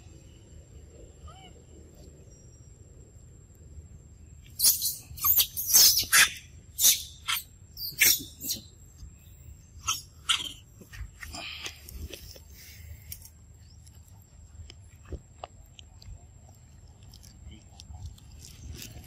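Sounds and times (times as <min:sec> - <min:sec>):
high-pitched animal calls: 0:04.6 - 0:08.7, 0:09.8 - 0:10.7.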